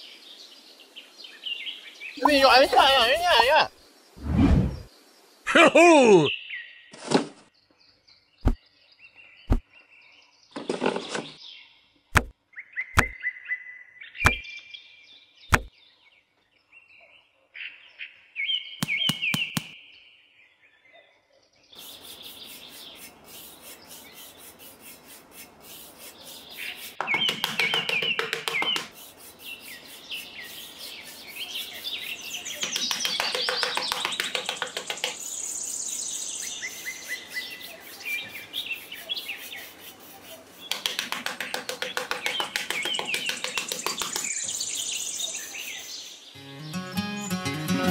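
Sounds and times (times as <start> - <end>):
songbirds chirping: 0.0 - 47.9
sharp clicks: 32.6 - 35.2.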